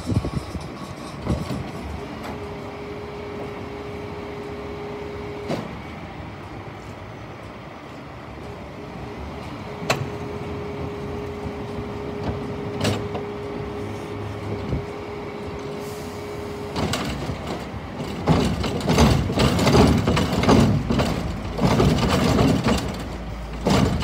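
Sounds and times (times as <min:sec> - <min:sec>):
truck engine running: 0:00.0 - 0:24.0
metallic clanks of bins: 0:16.7 - 0:24.0.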